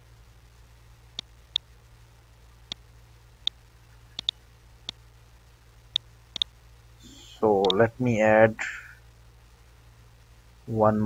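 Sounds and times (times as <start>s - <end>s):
faint low hum: 0.0s - 11.0s
mouse button clicking: 4.2s - 4.4s.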